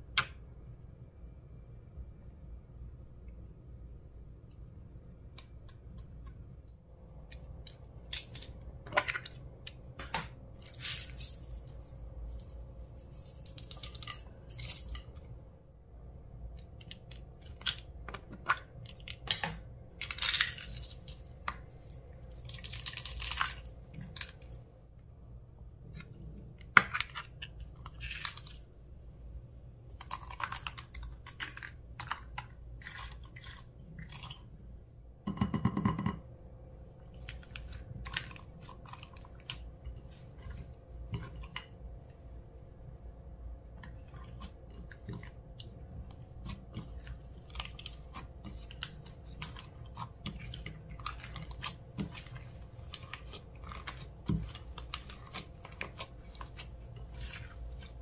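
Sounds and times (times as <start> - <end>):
slime squishing crackles: 43.6 - 58.0.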